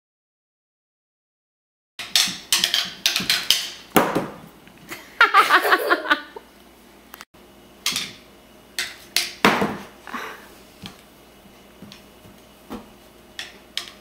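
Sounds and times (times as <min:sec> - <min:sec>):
sticks clattering on wooden floor: 0:02.0 - 0:04.3.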